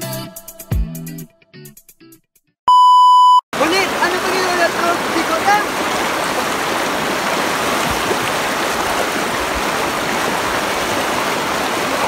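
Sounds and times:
river rushing over rocks: 0:03.6 - 0:12.0.

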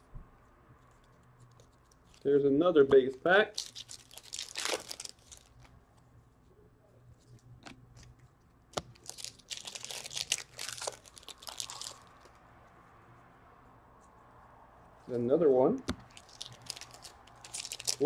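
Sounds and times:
plastic wrappers tearing and crinkling: 0:03.4 - 0:05.8, 0:08.7 - 0:12.4, 0:16.0 - 0:18.0.

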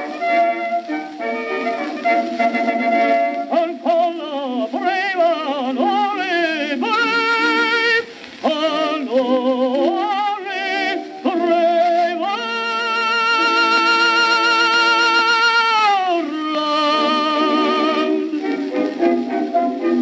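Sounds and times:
orchestra playing: 0:00.0 - 0:04.1, 0:16.8 - 0:20.0
tenor singing with vibrato: 0:00.0 - 0:20.0.

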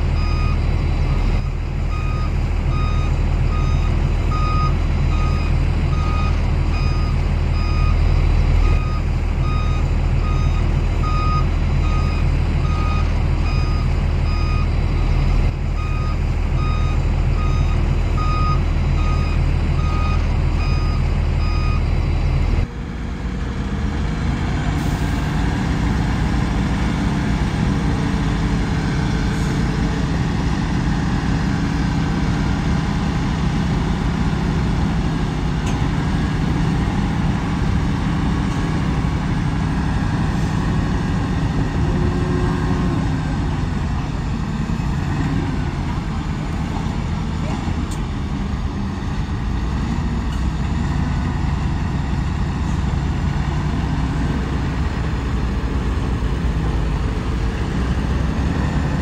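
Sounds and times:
diesel engine running: 0:00.0 - 0:59.0
reversing alarm beeping: 0:00.2 - 0:15.1, 0:15.8 - 0:21.9.

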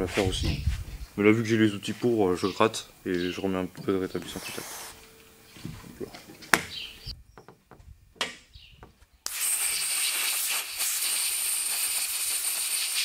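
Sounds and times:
air blow gun hissing: 0:04.2 - 0:05.0, 0:09.3 - 0:13.0.

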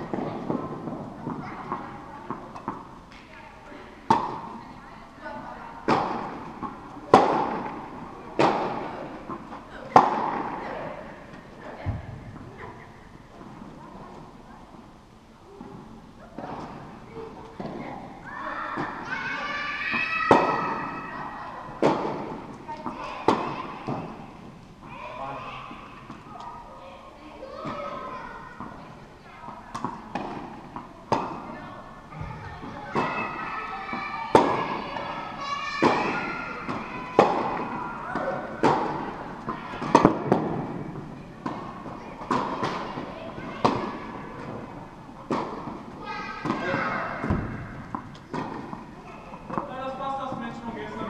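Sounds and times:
tennis ball racket strikes: 0:45.3 - 0:49.7.

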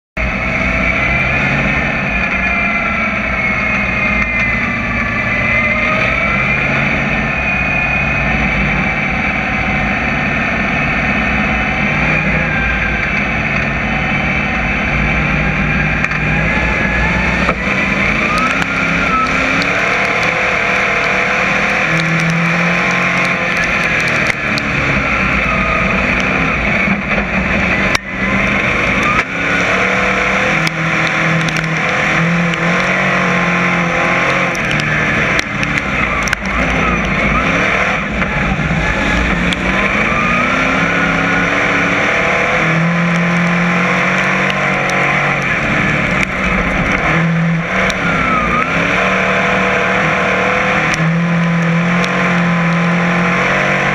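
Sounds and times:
other race car engines: 0:00.2 - 0:53.9
race car engine revving: 0:00.2 - 0:53.9.

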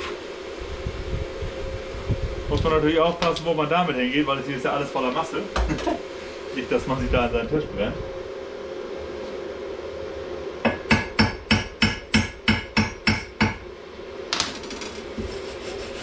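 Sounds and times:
chipping hammer striking steel: 0:10.7 - 0:13.6.

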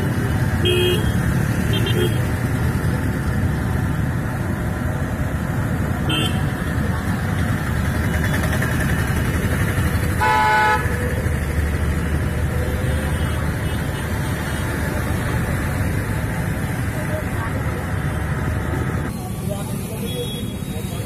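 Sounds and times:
steady traffic rush: 0:00.0 - 0:21.0
car horn: 0:00.6 - 0:02.2, 0:06.1 - 0:06.5, 0:10.2 - 0:11.0.

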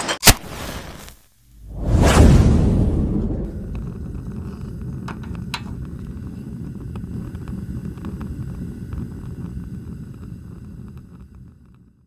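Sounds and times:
fire crackling: 0:00.4 - 0:12.0
flames roaring: 0:00.5 - 0:12.0.

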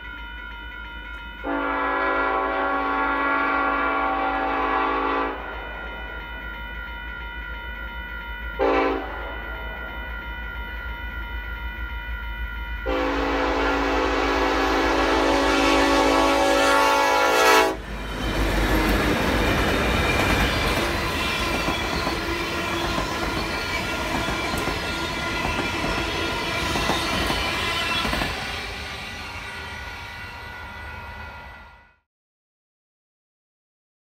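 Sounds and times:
train air horn: 0:01.4 - 0:05.6, 0:08.6 - 0:09.4, 0:12.8 - 0:18.4
train wheels clicking over rail joints: 0:17.9 - 0:29.3.

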